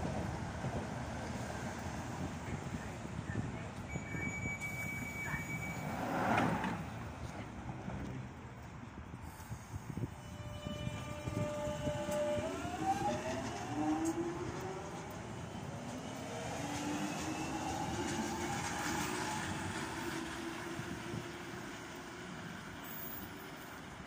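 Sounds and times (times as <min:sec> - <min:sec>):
wheels rumbling on rail: 0:00.0 - 0:24.0
train traction whine: 0:09.2 - 0:24.0.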